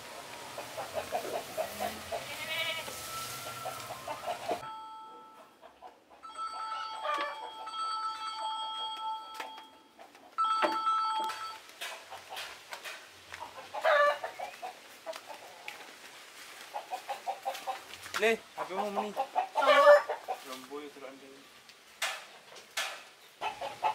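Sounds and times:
chickens clucking: 0:00.0 - 0:07.7, 0:09.9 - 0:10.4, 0:11.3 - 0:20.9, 0:22.0 - 0:23.9
steady ringing tone: 0:06.2 - 0:11.6.

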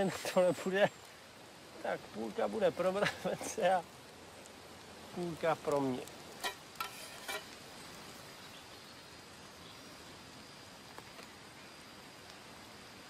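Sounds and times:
outdoor background hiss: 0:00.0 - 0:13.0
utensil clinking on metal plate: 0:06.4 - 0:07.5.

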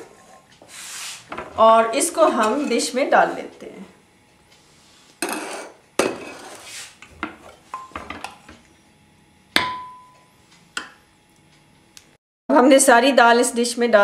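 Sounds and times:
ladle scraping metal pot: 0:02.2 - 0:02.9, 0:05.2 - 0:07.9.

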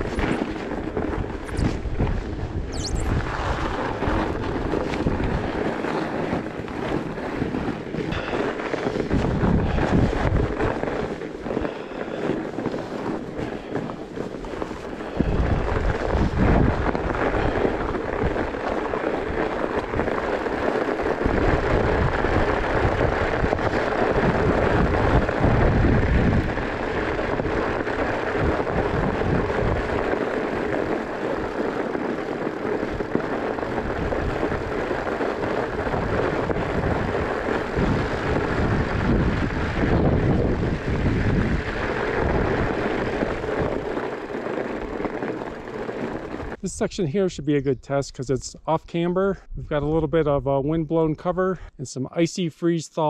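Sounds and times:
tyres crunching through snow: 0:00.0 - 0:47.8
wind buffeting microphone: 0:00.0 - 0:51.8.

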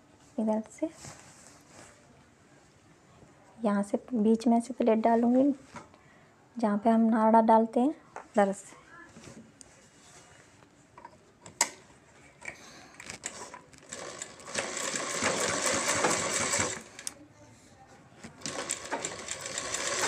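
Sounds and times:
sewing machine stitching: 0:13.2 - 0:17.1, 0:18.4 - 0:20.0.

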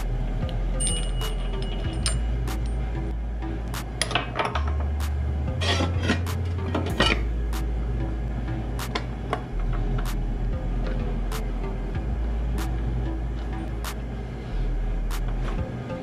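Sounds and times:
background music with beat: 0:00.0 - 0:16.0
metal parts clinking and rattling: 0:00.8 - 0:02.8, 0:04.0 - 0:04.9.

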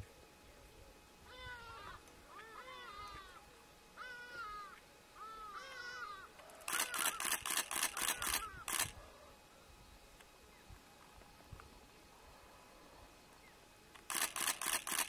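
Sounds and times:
camera shutter clicking: 0:06.6 - 0:09.0, 0:14.0 - 0:15.0.

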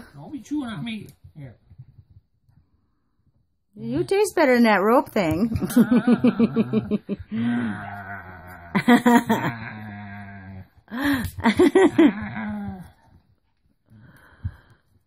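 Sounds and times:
person laughing: 0:05.6 - 0:07.8, 0:08.7 - 0:09.8, 0:10.9 - 0:12.8
person groaning: 0:05.6 - 0:11.1.

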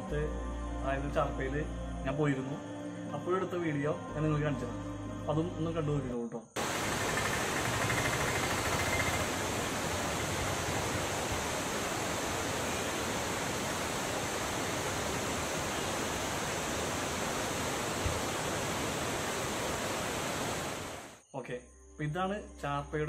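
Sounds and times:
waterfall rushing: 0:06.6 - 0:21.2.

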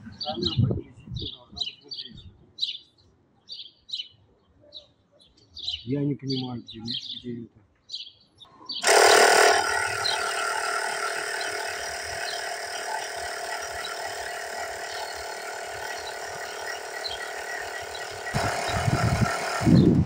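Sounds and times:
electric air pump whirring: 0:08.8 - 0:20.0.

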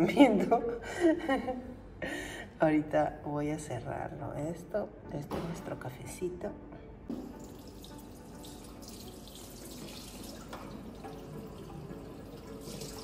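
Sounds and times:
tap running into a sink: 0:07.1 - 0:13.0.

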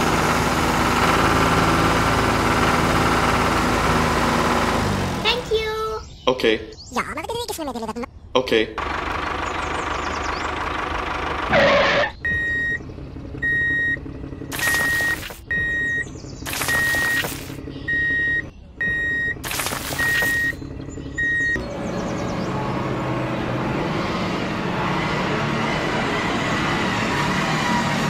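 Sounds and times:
low engine hum: 0:08.8 - 0:28.0
reversing alarm beeping: 0:11.5 - 0:12.8, 0:13.4 - 0:21.6.

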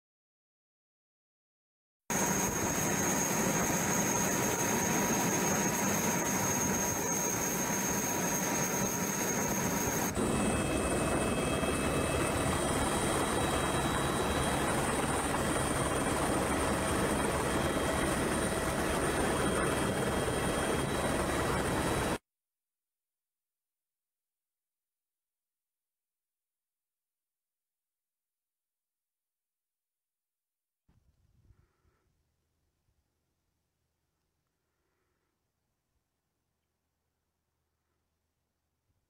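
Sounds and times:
helicopter rotor rushing: 0:02.1 - 0:22.2
thin high whine: 0:02.1 - 0:22.2.

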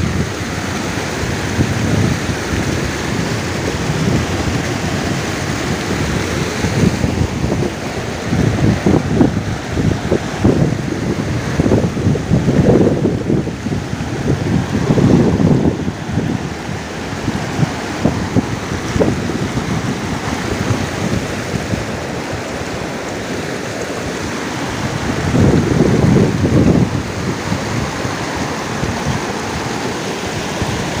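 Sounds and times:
stream rushing over rocks: 0:00.0 - 0:31.0
wind buffeting microphone: 0:00.0 - 0:31.0.

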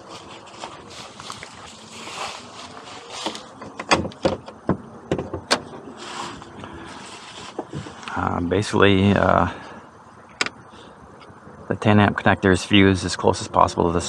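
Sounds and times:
footsteps crunching through dry leaves: 0:00.0 - 0:03.6, 0:06.0 - 0:08.4
car hood latch clicks and knocks: 0:03.6 - 0:05.7.

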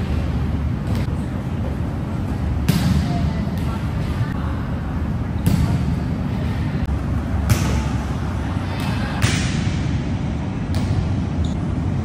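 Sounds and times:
steady low rumble: 0:00.0 - 0:12.0
volleyball being struck: 0:07.4 - 0:08.0, 0:09.2 - 0:09.9.

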